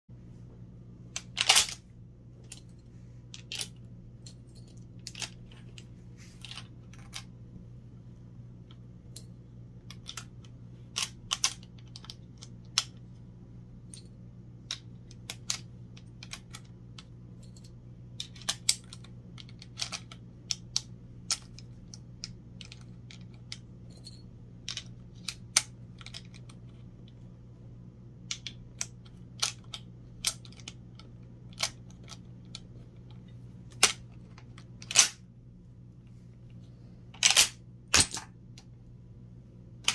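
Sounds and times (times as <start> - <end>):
steady low hum: 0.1 - 39.9
metallic clicks of cartridges: 28.3 - 35.2.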